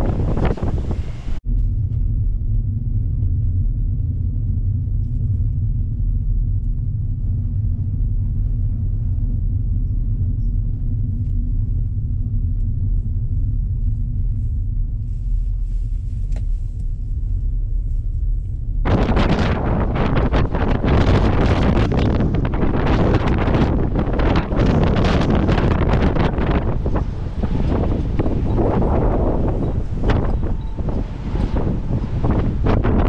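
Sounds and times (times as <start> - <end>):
car road and engine drone: 0.0 - 2.9, 16.0 - 33.0
faint steady hum: 0.0 - 33.0.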